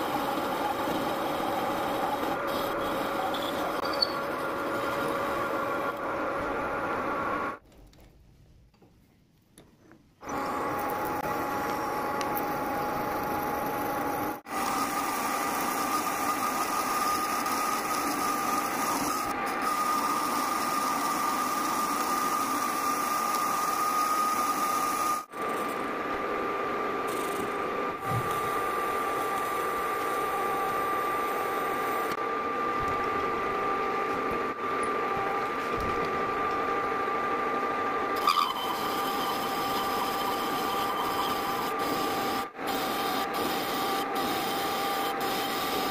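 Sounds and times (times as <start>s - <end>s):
metal lathe whining: 0.0s - 6.0s, 10.3s - 25.3s, 38.1s - 45.9s.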